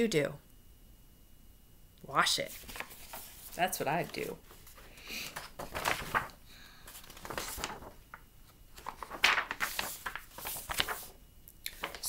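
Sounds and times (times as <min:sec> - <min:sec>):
book pages rustling: 0:02.5 - 0:12.0.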